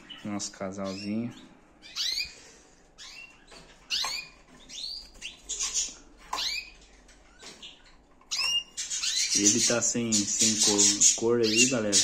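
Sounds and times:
canaries chirping: 0.0 - 12.0.

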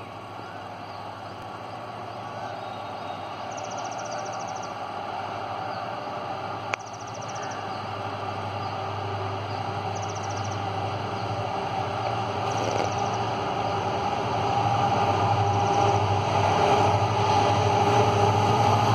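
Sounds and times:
distant locomotives humming: 0.0 - 18.9
bird chirping trill: 10.0 - 10.6.

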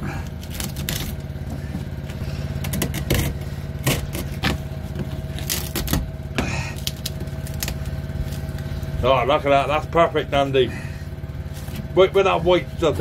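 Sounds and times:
generator running: 0.0 - 13.0
knife blade scraping fibreglass: 2.4 - 6.1.

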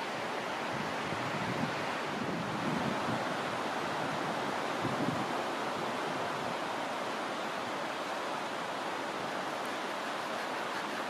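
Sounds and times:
wind rushing through pine trees: 0.0 - 11.0
wind gust buffeting microphone: 0.6 - 6.8.

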